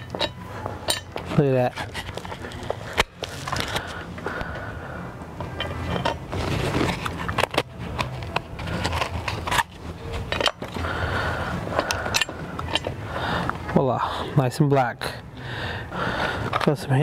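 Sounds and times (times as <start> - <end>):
plastic and metal parts clicking: 6.8 - 10.8.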